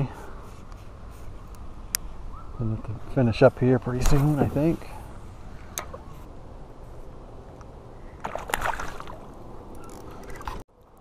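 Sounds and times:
waves lapping against hull: 8.1 - 10.6.

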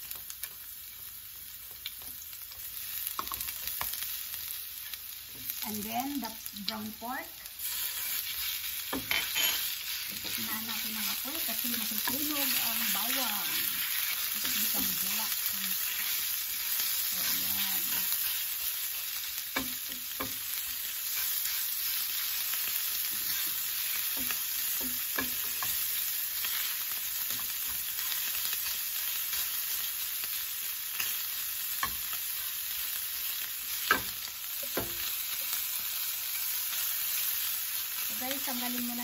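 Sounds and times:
meat sizzling in oil: 0.0 - 39.0
spatula tapping a pan: 1.6 - 4.0, 19.5 - 20.5, 23.2 - 25.9, 31.8 - 32.1, 33.8 - 35.5
spatula scraping a pan: 7.6 - 28.3.

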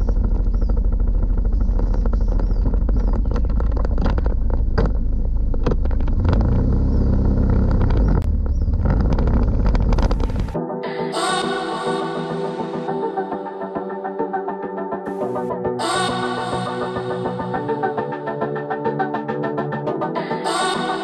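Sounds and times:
scooter engine running: 0.0 - 10.6.

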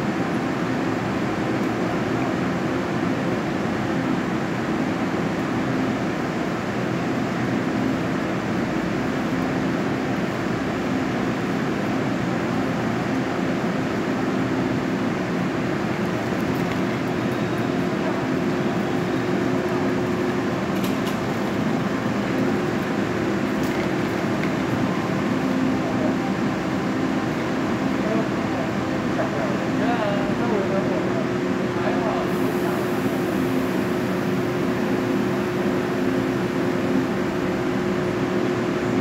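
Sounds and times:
train coach mechanical hum: 0.0 - 39.0.

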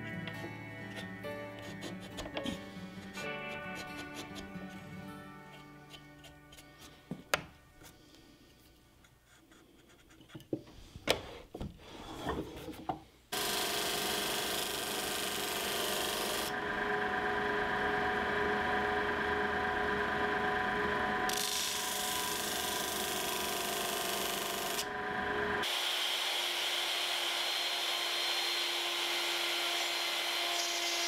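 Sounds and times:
chisel knocking and scraping wood: 0.3 - 4.8, 5.5 - 8.0, 9.8 - 13.0
disc sander motor hum: 15.0 - 30.9.

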